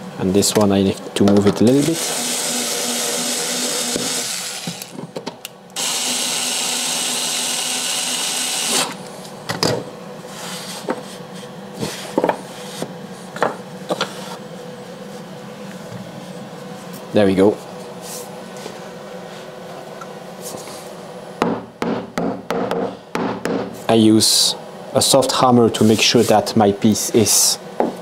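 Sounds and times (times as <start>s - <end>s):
cordless screwdriver running: 1.8s - 4.9s, 5.8s - 9.0s.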